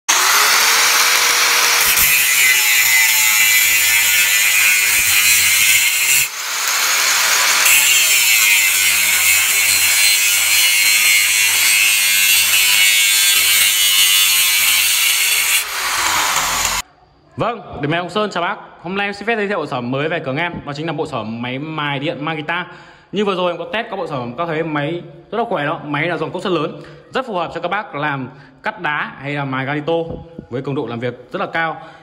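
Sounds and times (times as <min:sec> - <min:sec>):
angle grinder cutting steel: 0:00.1 - 0:16.8.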